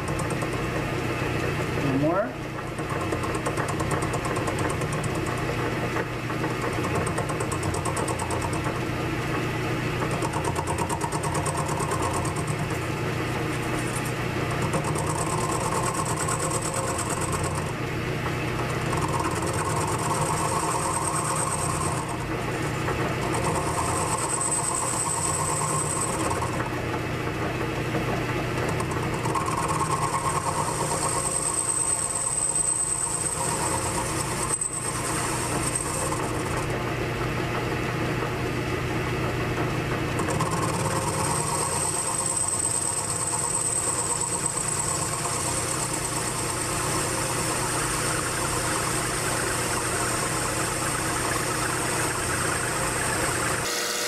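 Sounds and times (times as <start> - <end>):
lathe motor humming: 0.0 - 54.0
high thin cutting whine: 41.3 - 54.0.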